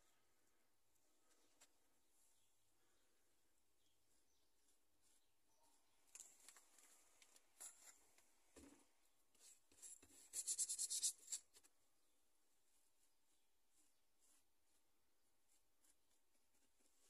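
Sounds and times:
scratching and rubbing strokes: 3.9s - 8.2s, 9.3s - 11.8s, 12.5s - 17.0s.

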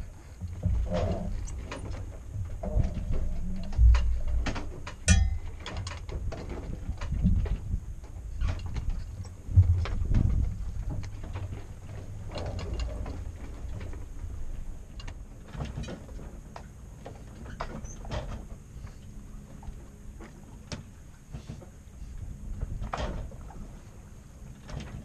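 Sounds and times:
low rumble of wind and water: 0.0s - 25.0s
boat gear knocking and clicking: 0.4s - 18.7s.

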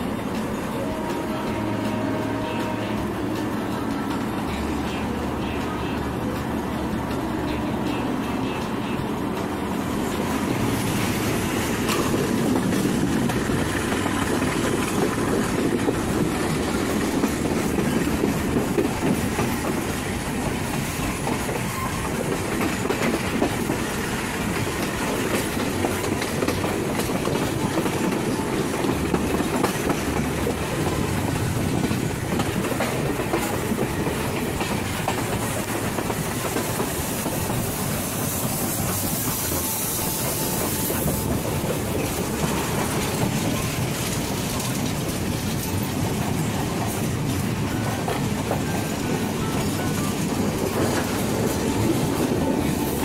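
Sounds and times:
train wheels clattering on rails: 0.0s - 53.0s
high hiss: 36.7s - 42.0s.

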